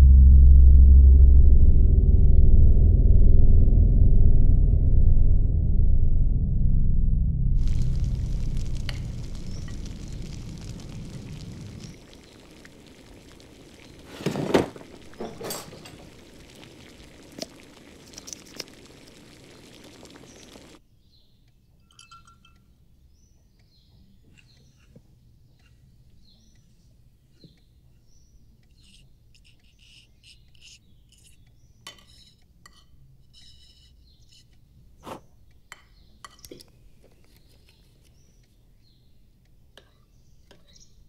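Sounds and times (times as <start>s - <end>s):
rushing noise: 0.0s - 20.8s
small clinks: 15.1s - 16.5s, 21.8s - 22.7s.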